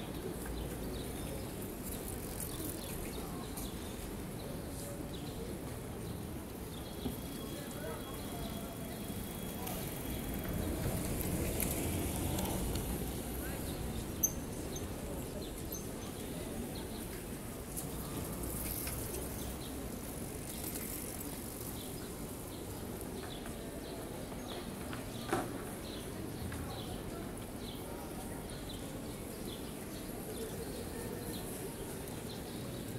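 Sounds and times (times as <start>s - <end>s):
murmur of distant voices: 0.0s - 32.9s.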